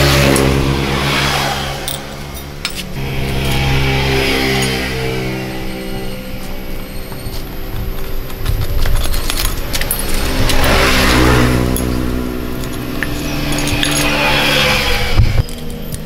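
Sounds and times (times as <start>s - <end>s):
vehicle engine humming: 0.0s - 16.0s
metal parts clinking: 1.8s - 3.6s, 7.9s - 16.0s.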